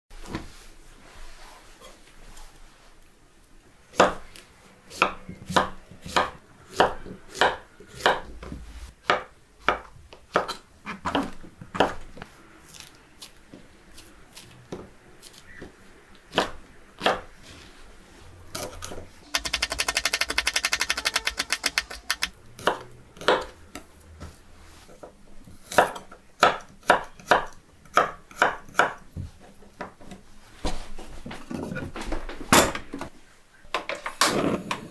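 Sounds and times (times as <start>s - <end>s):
rapid knife chopping: 19.3s - 23.5s.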